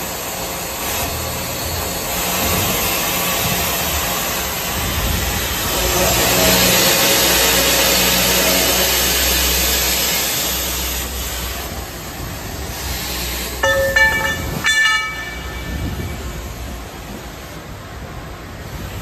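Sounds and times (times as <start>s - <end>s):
circular saw machine running: 4.2s - 17.2s
sharp metal clangs: 13.6s - 16.5s.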